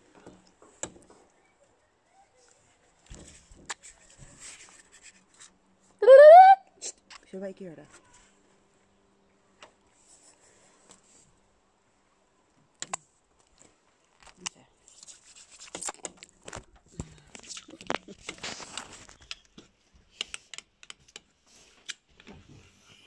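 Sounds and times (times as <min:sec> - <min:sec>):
rustling scrapes: 0:02.6 - 0:05.6, 0:14.8 - 0:16.7, 0:17.9 - 0:19.2
handling clicks and taps: 0:17.5 - 0:22.4.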